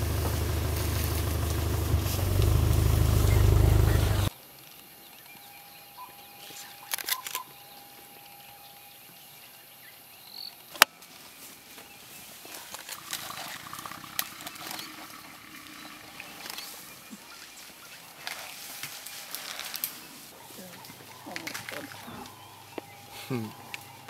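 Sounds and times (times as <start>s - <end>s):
sharp branch crack: 0.0s - 4.3s
leaves and twigs rustling: 0.0s - 24.0s.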